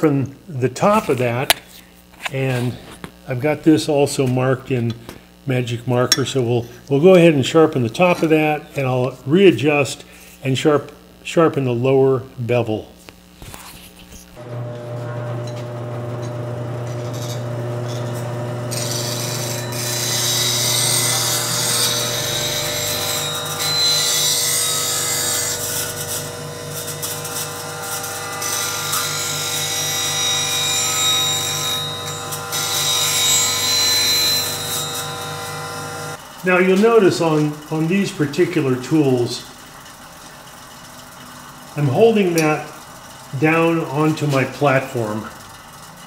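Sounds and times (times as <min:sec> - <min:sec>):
bench grinder motor hum: 0:14.4 - 0:36.2.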